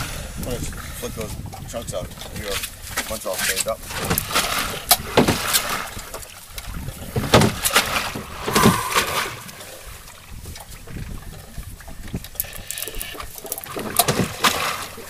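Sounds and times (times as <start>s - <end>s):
water sloshing against boat: 0.0s - 15.0s
sharp splashes: 7.6s - 10.2s.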